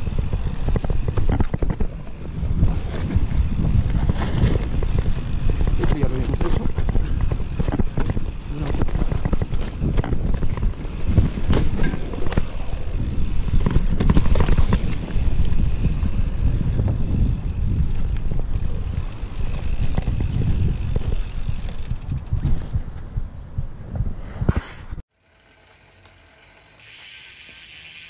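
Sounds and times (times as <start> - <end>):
tyres rumbling on dirt: 0.0 - 17.5
wind buffeting microphone: 0.0 - 25.0
bike knocks and rattles: 0.0 - 28.0.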